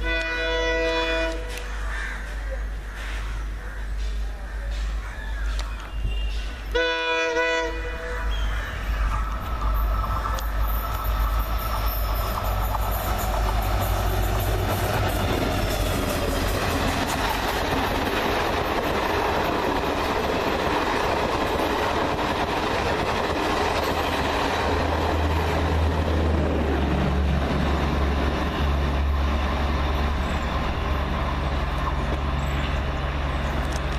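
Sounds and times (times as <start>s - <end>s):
train horn blast: 0.0s - 1.6s, 6.7s - 8.7s
train rumbling past: 0.0s - 33.9s.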